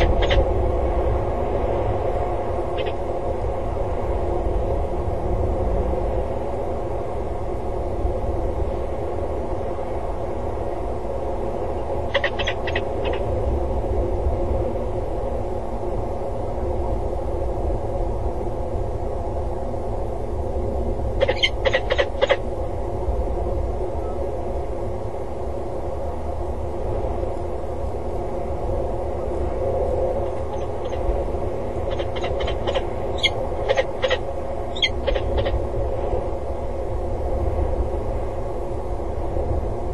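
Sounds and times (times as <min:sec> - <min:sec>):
falcons calling: 0:00.0 - 0:00.4, 0:02.8 - 0:03.0, 0:12.1 - 0:13.3, 0:21.2 - 0:22.4, 0:30.2 - 0:31.1, 0:31.8 - 0:35.6
low rumble with hum: 0:00.0 - 0:39.9.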